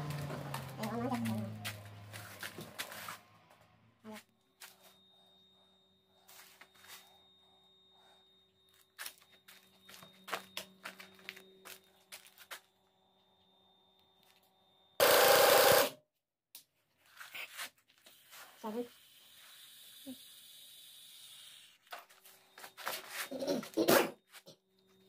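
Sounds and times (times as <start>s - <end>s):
impact wrench rattling burst: 15.0s - 16.0s.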